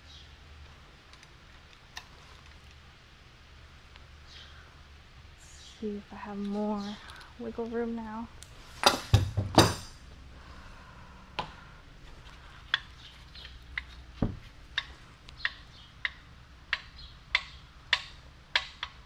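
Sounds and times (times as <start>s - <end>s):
dull knock: 14.2s - 14.4s
sharp metal clicks and taps: 14.7s - 19.0s.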